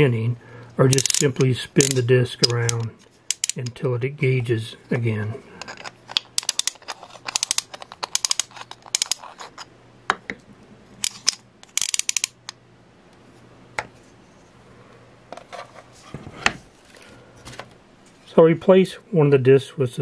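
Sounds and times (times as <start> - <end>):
ratchet wrench clicking: 0.9 - 3.7, 6.4 - 9.2, 11.0 - 12.4.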